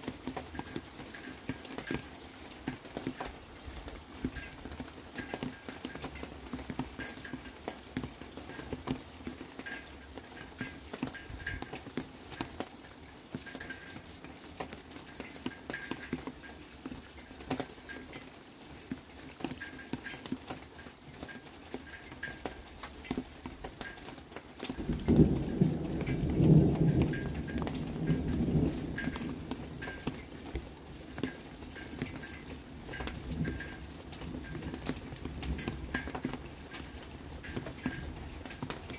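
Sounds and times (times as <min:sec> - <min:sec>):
rain pattering and dripping: 0:00.0 - 0:38.9
thunder rumbling: 0:24.8 - 0:30.3.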